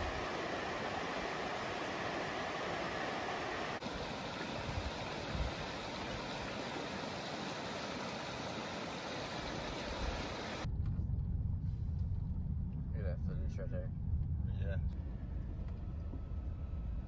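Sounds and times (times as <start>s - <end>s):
river water rushing over riffles: 0.0s - 10.7s
vehicle rumble from inside cab: 13.9s - 17.0s.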